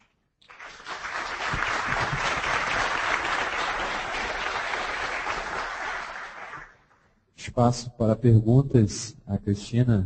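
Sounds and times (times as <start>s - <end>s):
audience applauding: 0.0s - 7.0s.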